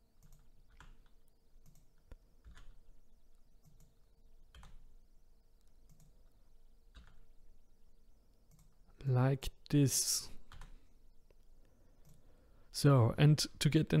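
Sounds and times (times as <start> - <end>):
faint steady hum: 0.0 - 14.0
computer keyboard key presses: 0.2 - 2.8, 4.5 - 4.9, 6.9 - 7.2.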